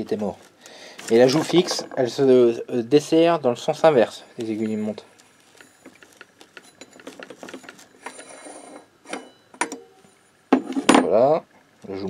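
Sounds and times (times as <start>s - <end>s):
metallic ticking and clicking: 4.4s - 7.8s.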